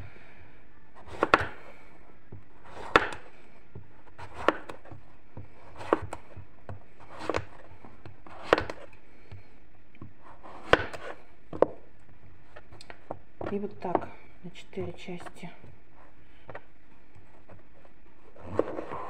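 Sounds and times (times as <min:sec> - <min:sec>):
knife slicing zucchini: 0:01.0 - 0:01.8, 0:04.0 - 0:08.9, 0:10.2 - 0:11.8.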